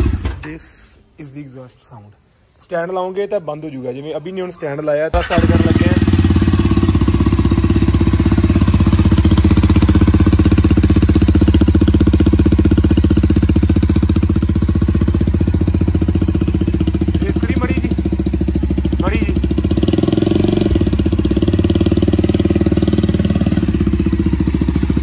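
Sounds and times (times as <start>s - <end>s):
motorcycle engine idling loudly: 5.3s - 25.0s.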